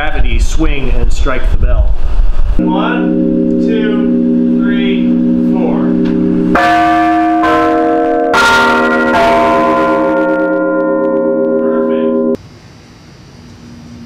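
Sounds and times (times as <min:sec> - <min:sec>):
large bells ringing: 0:02.6 - 0:12.4.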